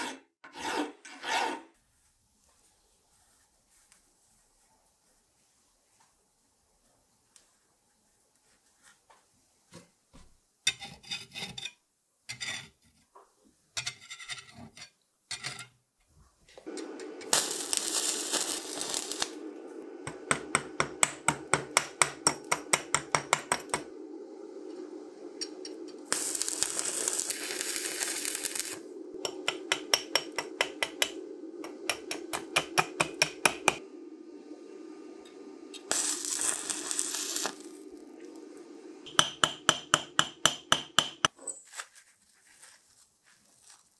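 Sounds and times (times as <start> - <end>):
electrode scraping metal: 0.0 - 1.8, 16.9 - 19.6, 25.4 - 33.8, 35.7 - 38.5
welding arc humming and sizzling: 16.7 - 33.8, 34.4 - 40.4
crackling ticks of welding arc: 17.0 - 19.4, 25.4 - 28.8, 35.8 - 38.4.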